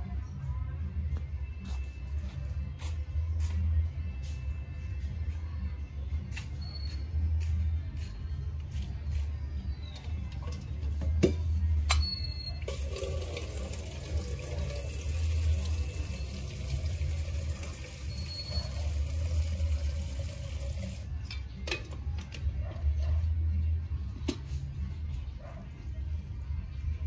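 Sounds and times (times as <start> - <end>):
water pouring from a kettle: 12.6 - 21.0.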